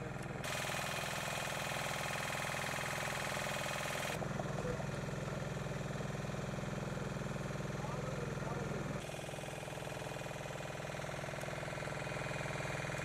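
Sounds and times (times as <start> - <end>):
small engine running: 0.0 - 13.0.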